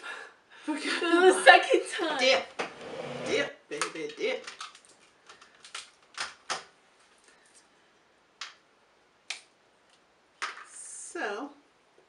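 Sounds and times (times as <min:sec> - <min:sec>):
crab shells cracking: 0:03.8 - 0:06.7.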